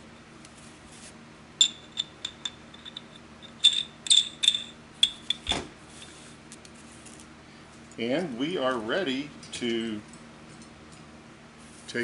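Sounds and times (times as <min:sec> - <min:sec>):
metal parts clicking and clinking: 0:01.6 - 0:06.1.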